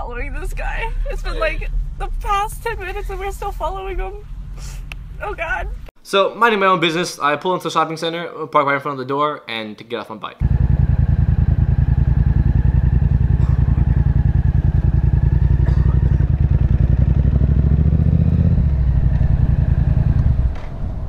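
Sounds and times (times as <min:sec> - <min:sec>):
motorcycle engine low revs: 0:10.4 - 0:21.0.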